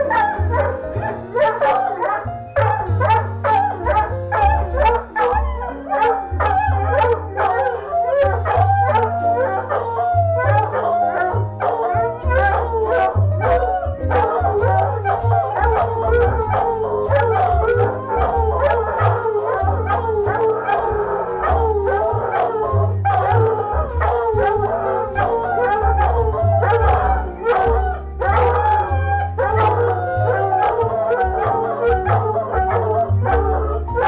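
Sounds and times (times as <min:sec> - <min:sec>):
puppies howling: 0:00.0 - 0:34.0
music with beat and bass: 0:19.7 - 0:30.3.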